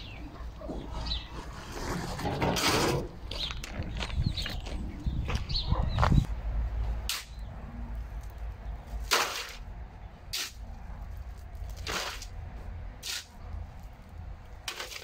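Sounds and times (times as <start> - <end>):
shovel scraping gravel: 1.0 - 3.2, 7.1 - 7.4, 8.9 - 9.7, 10.3 - 12.4, 13.0 - 13.9, 14.6 - 15.0.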